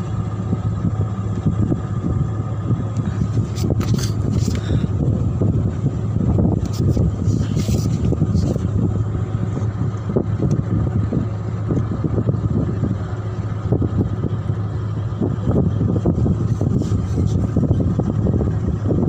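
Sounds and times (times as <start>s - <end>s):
boat diesel engine droning: 0.0s - 19.0s
wind buffeting microphone: 0.0s - 19.0s.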